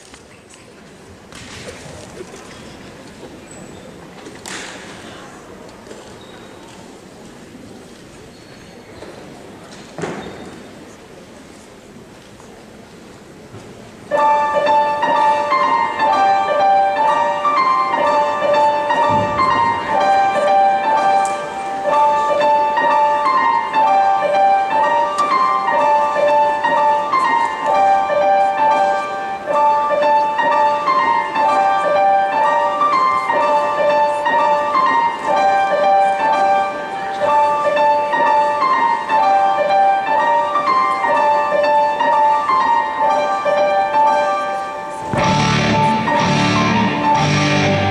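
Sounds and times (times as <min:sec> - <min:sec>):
piano melody: 0:14.1 - 0:47.9.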